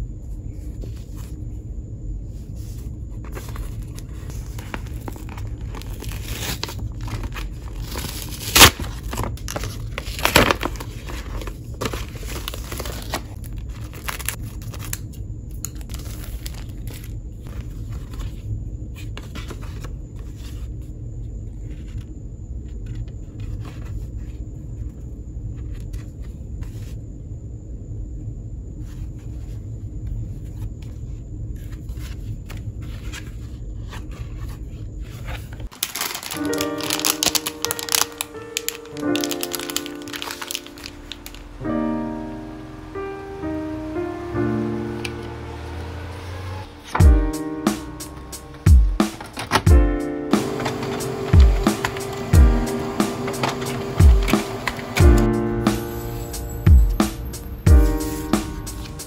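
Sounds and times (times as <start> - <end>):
paper crinkling and rustling: 2.3 - 20.8, 21.5 - 25.0, 30.2 - 42.9, 48.4 - 49.7, 50.3 - 59.0.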